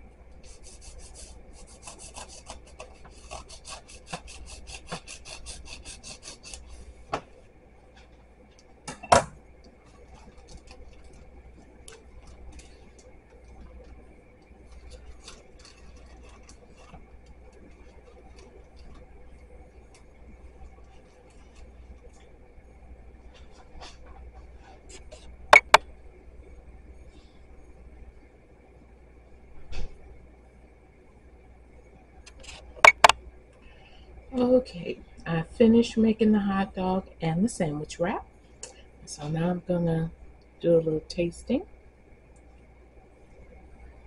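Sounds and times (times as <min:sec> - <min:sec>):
knife sawing through paper wrap: 0:00.4 - 0:06.7
paper rustling: 0:14.6 - 0:19.0.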